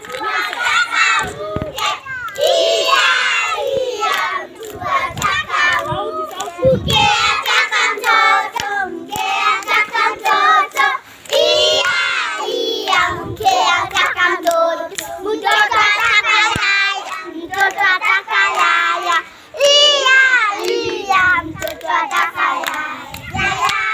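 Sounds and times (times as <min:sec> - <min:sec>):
hand claps: 0:00.0 - 0:12.1, 0:13.7 - 0:23.9
children singing together: 0:00.0 - 0:23.9.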